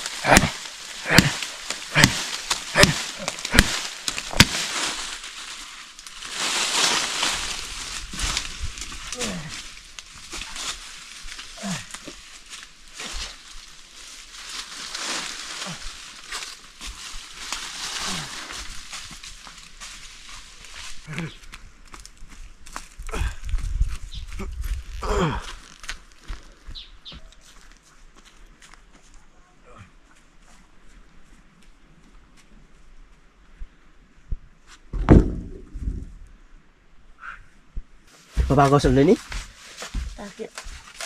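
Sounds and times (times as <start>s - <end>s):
hard chopping strikes: 0.2s - 4.7s.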